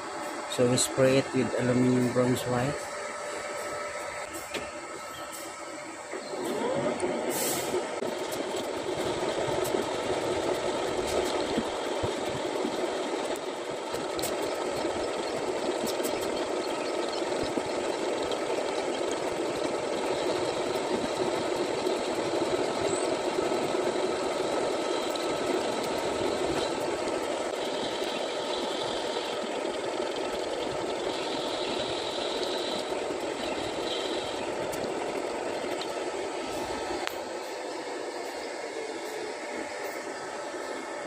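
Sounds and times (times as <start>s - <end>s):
metal lathe running: 0.0s - 41.0s
hiss of cutting tool: 7.3s - 7.8s.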